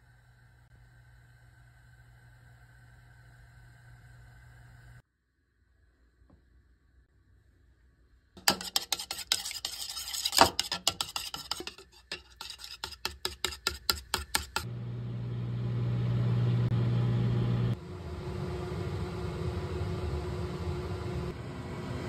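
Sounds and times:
dishes and cutlery clinking: 0:08.4 - 0:14.6
steady low hum: 0:14.4 - 0:22.0.

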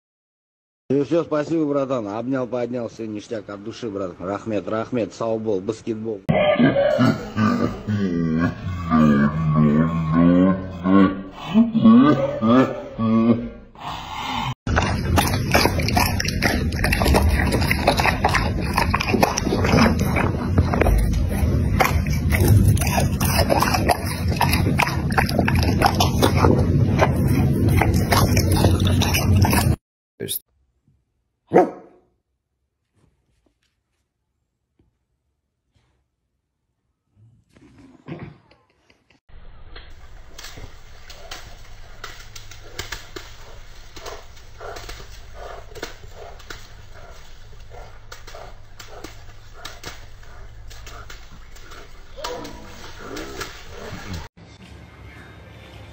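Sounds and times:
wet clicks and smacks: 0:14.7 - 0:26.6, 0:40.2 - 0:54.1
dog splashing in a muddy puddle: 0:14.7 - 0:29.8, 0:39.9 - 0:54.3
puppy chewing fruit: 0:14.7 - 0:29.8, 0:39.9 - 0:54.3.

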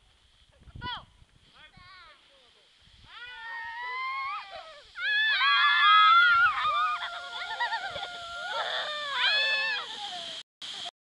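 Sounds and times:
children shrieking: 0:03.2 - 0:10.4.

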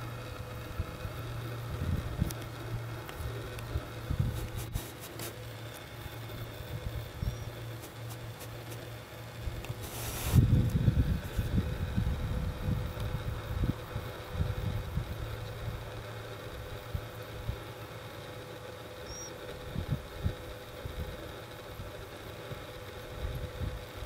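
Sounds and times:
faint hum: 0:00.0 - 0:24.0
wind rumbling on microphone: 0:00.6 - 0:04.8, 0:09.4 - 0:15.9, 0:19.6 - 0:21.2.

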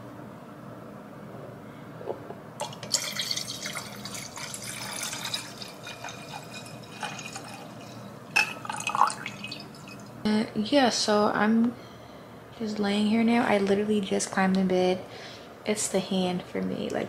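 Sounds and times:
wine pouring into a glass: 0:02.6 - 0:10.2.

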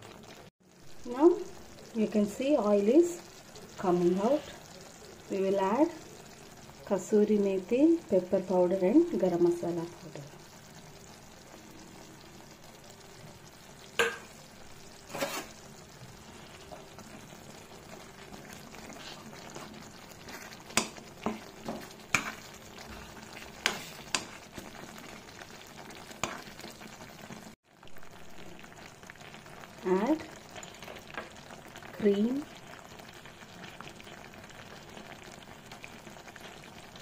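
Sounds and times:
gravy sizzling in a pan: 0:00.0 - 0:37.0
spoon knocking against pan: 0:14.0 - 0:14.3
spoon stirring gravy: 0:15.0 - 0:26.8.

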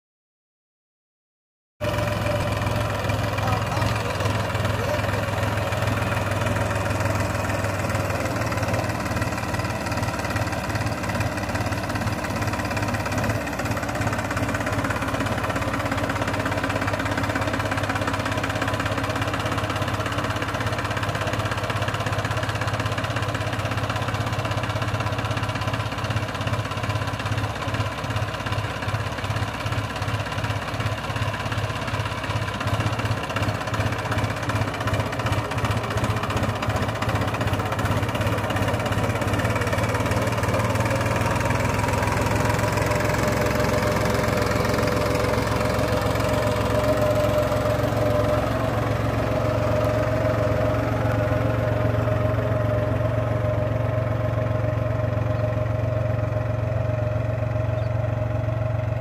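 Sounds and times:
tractor diesel engine under load: 0:01.8 - 0:59.0.

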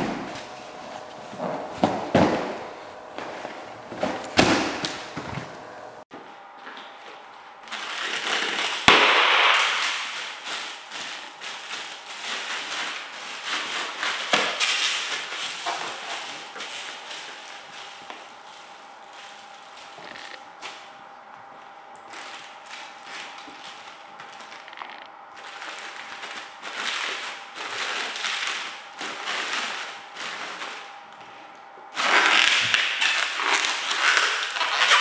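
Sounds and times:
feet thudding on padded mat: 0:00.0 - 0:05.7
foil crinkling underfoot: 0:07.1 - 0:21.0, 0:21.6 - 0:31.0, 0:32.0 - 0:35.0
foil balloon bursting: 0:08.0 - 0:10.9.

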